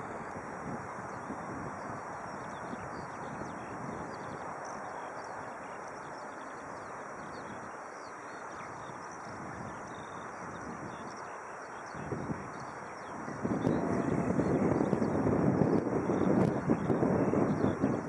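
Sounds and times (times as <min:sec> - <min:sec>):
small birds chirping: 0:00.0 - 0:18.0
distant jet airliner: 0:12.4 - 0:18.0.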